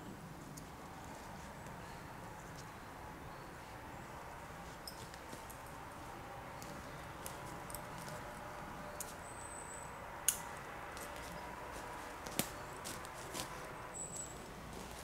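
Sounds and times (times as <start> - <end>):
faint steady background noise: 0.0 - 15.0.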